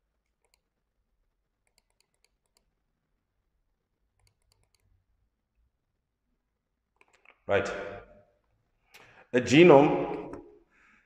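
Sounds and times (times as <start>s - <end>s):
computer controls clicking: 0.2s - 0.9s, 1.6s - 2.8s, 4.1s - 5.0s, 6.9s - 7.4s.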